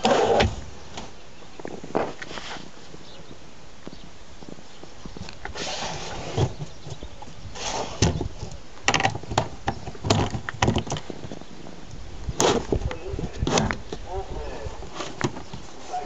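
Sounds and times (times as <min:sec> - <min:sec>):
wooden box knocks and rattles: 0:08.9 - 0:11.3.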